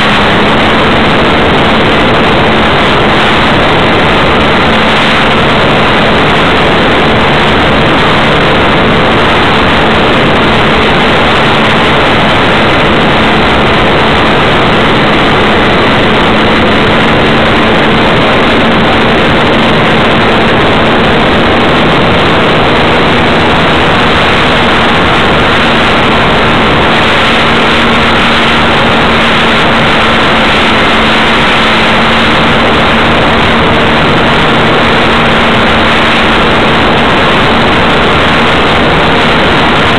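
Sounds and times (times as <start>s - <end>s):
model airplane motor and propeller: 0.0s - 39.9s.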